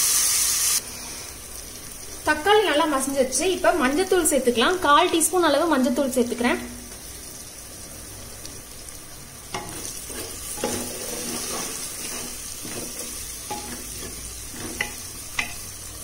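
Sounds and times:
food sizzling in oil: 0.0 - 16.0
spatula stirring in pot: 9.5 - 16.0
spatula knocking against pot: 14.6 - 15.7.

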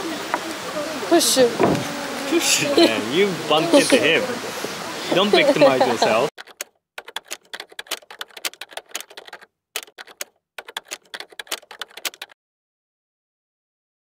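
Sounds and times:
keyboard key clicks: 6.4 - 12.4.

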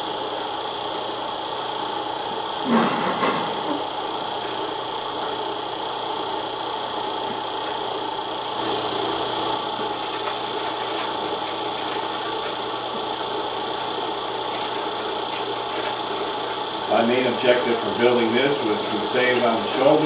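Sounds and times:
electric meat grinder humming: 0.0 - 20.0.

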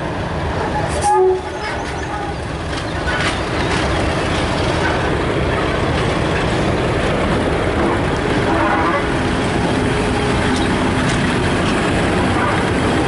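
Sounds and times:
diesel locomotive engine rumbling: 0.0 - 13.0.

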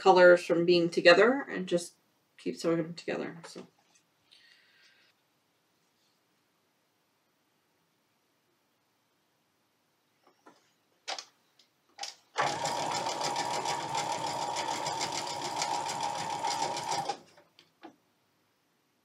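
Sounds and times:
sewing machine stitching: 12.0 - 17.5.

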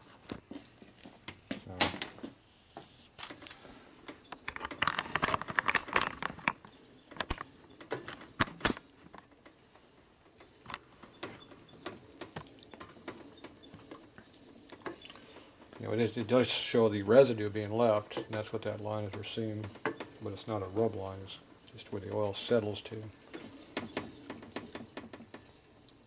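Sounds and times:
metal parts clinking: 4.4 - 7.5.

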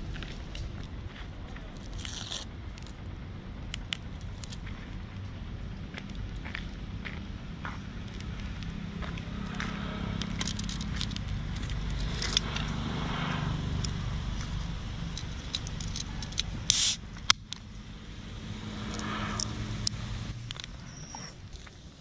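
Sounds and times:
low engine hum: 0.0 - 22.0
short hiss: 16.7 - 17.0.

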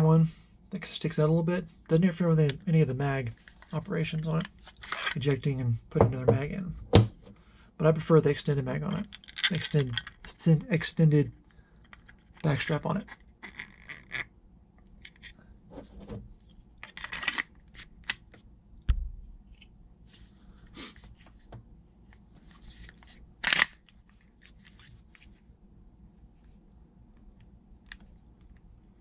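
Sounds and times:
plastic parts scraping and clicking: 9.0 - 10.3, 11.8 - 14.3, 14.9 - 18.3, 22.7 - 24.8.

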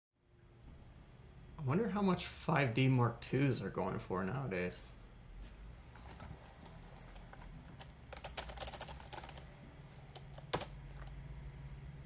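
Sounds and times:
computer keyboard typing: 6.1 - 11.5.

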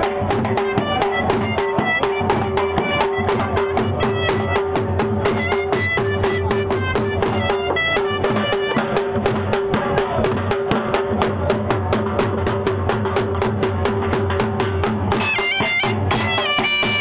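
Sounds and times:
double-reed pipe: 0.0 - 10.8, 15.1 - 17.0
drum beating fast: 0.0 - 17.0.

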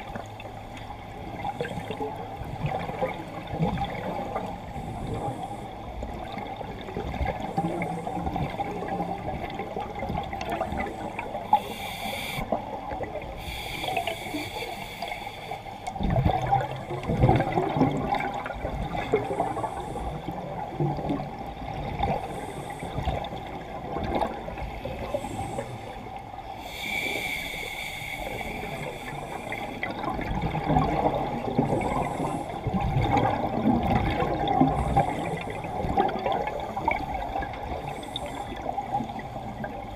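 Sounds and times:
muffled underwater noise: 0.0 - 39.9
regulator breaths hissing: 10.6 - 12.6, 13.4 - 15.9, 24.8 - 29.9
exhaled bubbles: 15.9 - 26.1, 28.2 - 39.9.

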